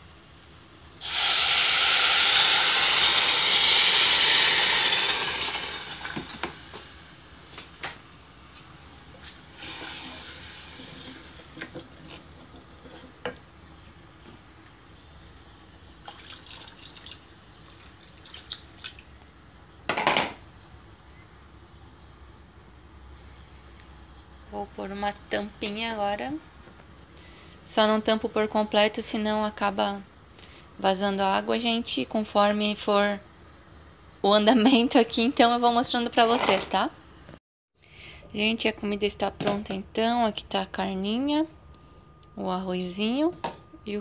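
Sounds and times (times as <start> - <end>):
water pouring into hot pan: 1.0 - 6.8, 16.1 - 17.2.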